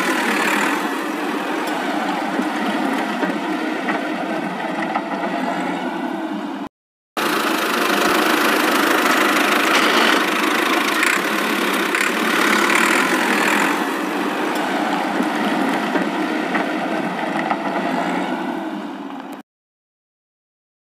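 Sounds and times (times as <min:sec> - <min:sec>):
tractor engine running: 0:00.0 - 0:05.4, 0:07.2 - 0:17.8.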